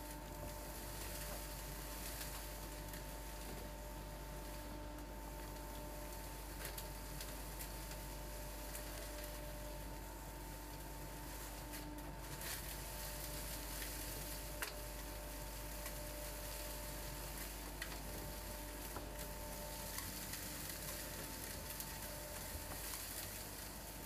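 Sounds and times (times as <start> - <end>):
debris clicking through hose: 11.5 - 24.0.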